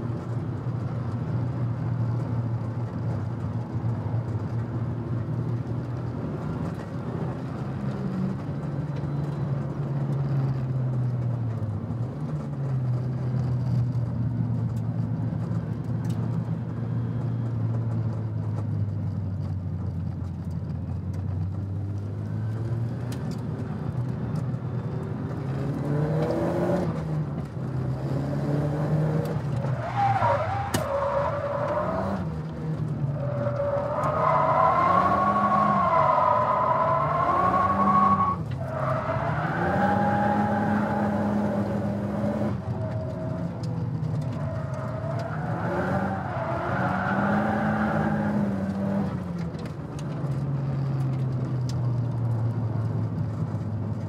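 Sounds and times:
car engine revving: 27.8 - 49.2.

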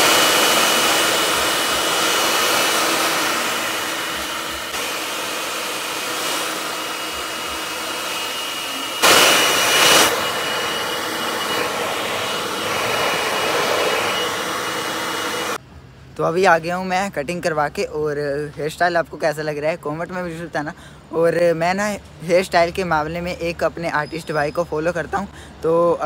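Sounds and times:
hair dryer blowing: 0.0 - 15.6.

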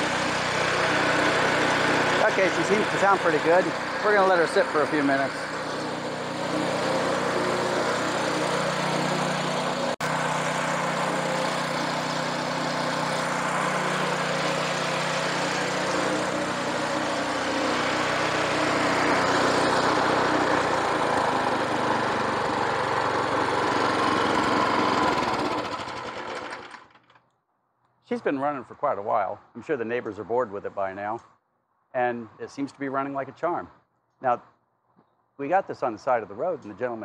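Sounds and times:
engine winding down: 0.0 - 27.2
small engine running: 0.0 - 27.3.

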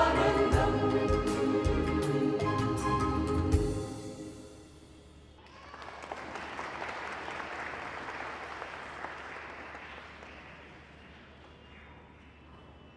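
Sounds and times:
audience applauding: 5.4 - 11.7.

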